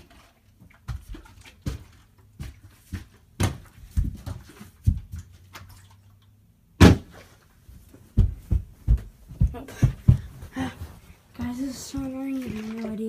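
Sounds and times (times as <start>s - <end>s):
light knocks and footsteps: 0.5s - 5.8s, 7.4s - 13.0s
bottle landing thud: 6.8s - 7.2s.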